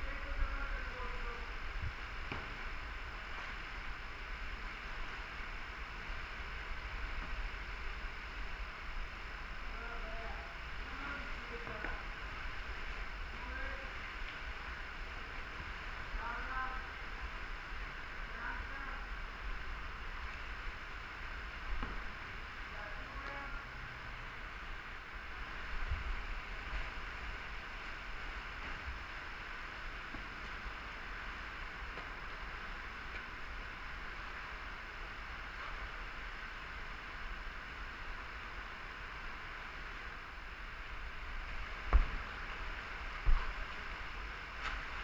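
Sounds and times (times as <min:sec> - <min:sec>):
river current rushing: 0:00.0 - 0:45.0
low knocks of boat or paddle: 0:41.8 - 0:42.3.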